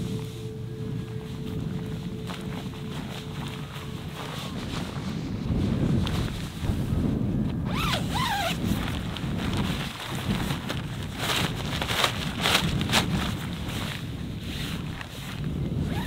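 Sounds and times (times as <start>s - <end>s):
wind rumbling on microphone: 0.0s - 16.0s
tent zipper pulled open: 7.6s - 13.9s, 14.5s - 16.0s.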